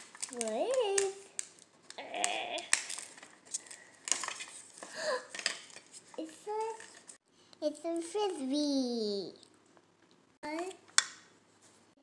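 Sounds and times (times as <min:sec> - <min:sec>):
foil seals rustling: 0:00.0 - 0:07.2.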